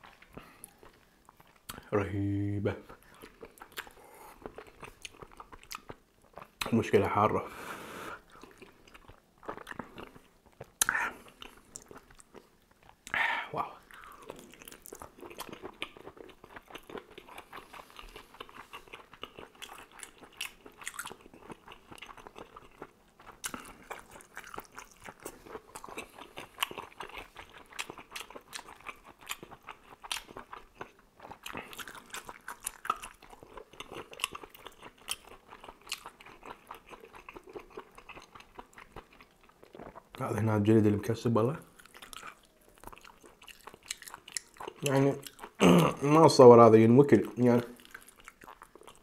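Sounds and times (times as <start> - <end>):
chewing and biting food: 3.0 - 6.8, 8.2 - 13.2, 13.8 - 40.2, 41.6 - 45.9, 47.2 - 49.0
wet mouth clicks: 10.8 - 11.2.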